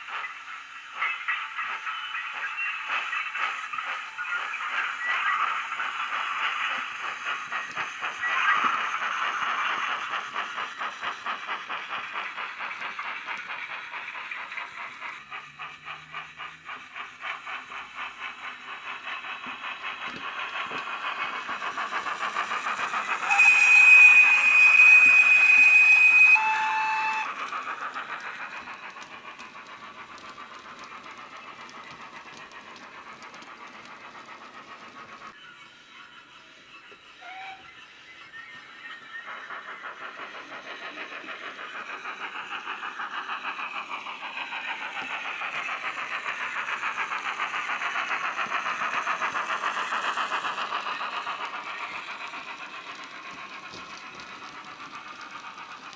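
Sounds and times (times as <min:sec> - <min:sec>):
steam locomotive chuffing with hiss: 0:00.0 - 0:55.9
steam whistle blast: 0:23.2 - 0:27.3.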